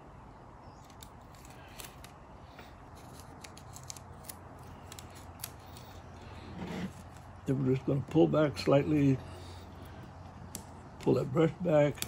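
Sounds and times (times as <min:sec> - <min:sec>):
steady low hum: 0:00.0 - 0:12.0
tape and paper crinkling: 0:00.8 - 0:08.2.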